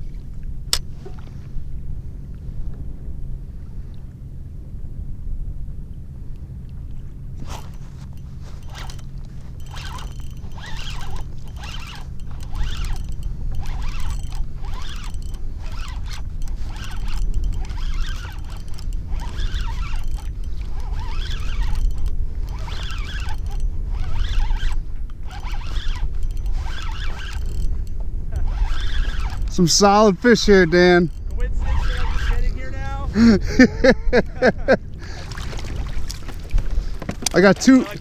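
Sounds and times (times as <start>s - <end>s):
low steady rumble: 0.0s - 38.0s
fishing reel gears whirring: 6.3s - 38.0s.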